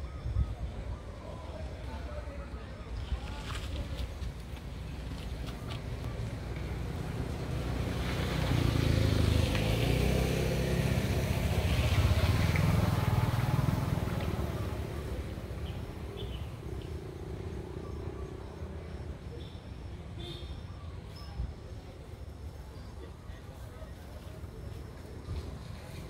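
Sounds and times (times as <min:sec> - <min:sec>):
passing motor vehicle engine: 0:04.8 - 0:19.2.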